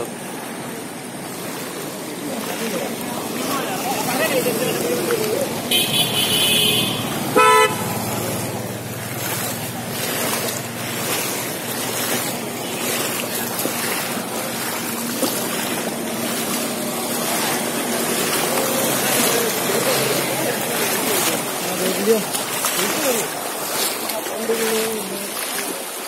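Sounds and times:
traffic moving through water: 0.0s - 26.0s
vehicle engine running: 0.7s - 23.8s
vehicle horn toot: 5.6s - 8.3s.

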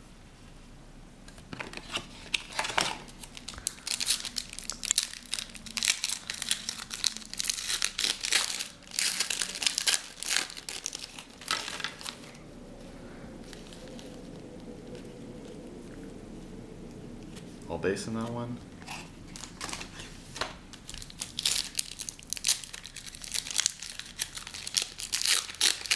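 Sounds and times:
foil card pack crinkling: 1.5s - 12.4s, 18.9s - 25.9s.

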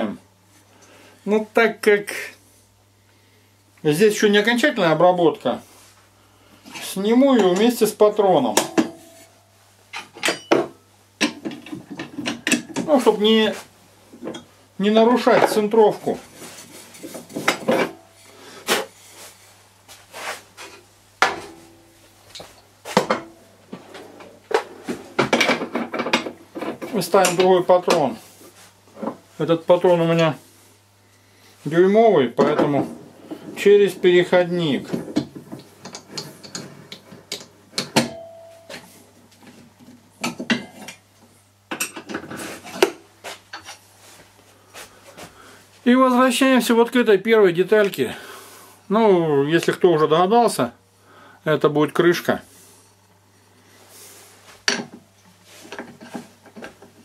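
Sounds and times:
faint low hum: 0.0s - 41.4s.

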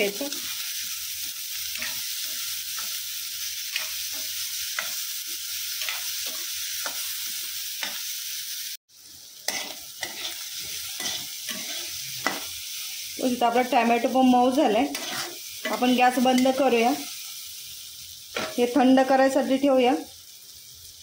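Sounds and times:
vegetables sizzling in oil: 0.0s - 21.0s
spatula scraping pan: 9.5s - 12.6s, 14.7s - 16.7s, 18.3s - 18.7s.

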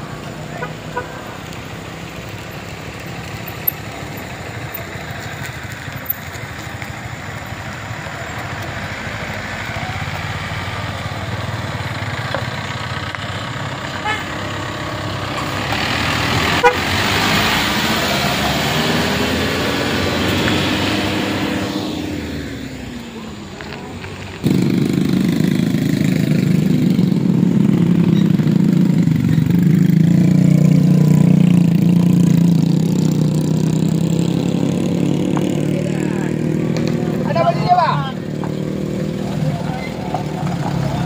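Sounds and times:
truck engine running: 0.0s - 34.3s
tires on gravel road: 0.0s - 41.0s.

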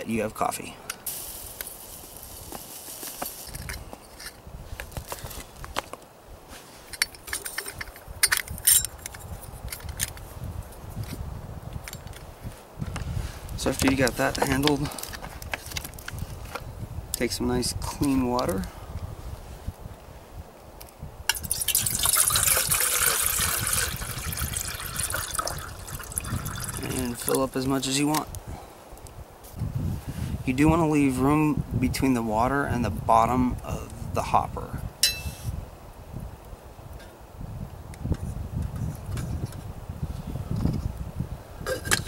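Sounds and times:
coffee grounds rustling: 1.0s - 5.6s, 21.5s - 27.6s
water pouring into metal pot: 21.3s - 27.4s.

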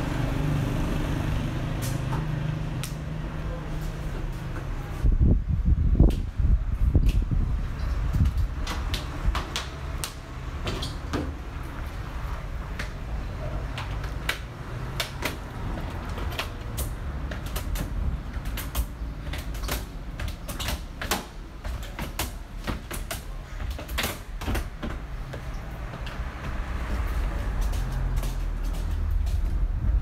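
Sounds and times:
steady low rumble: 25.6s - 30.0s.

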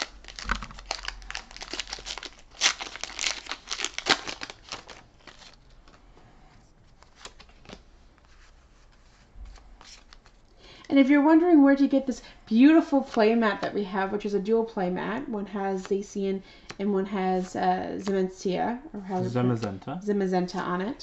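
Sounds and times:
foil wrapper crinkling and tearing: 0.0s - 5.6s.

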